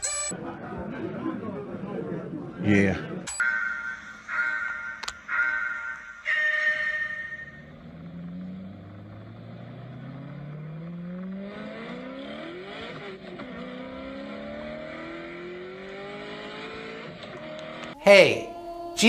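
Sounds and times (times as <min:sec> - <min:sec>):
kart engine accelerating: 0:07.4 - 0:18.0.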